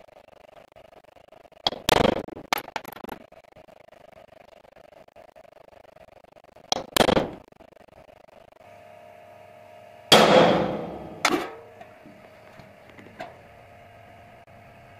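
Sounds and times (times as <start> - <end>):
hammer striking metal punch: 10.1 - 11.7.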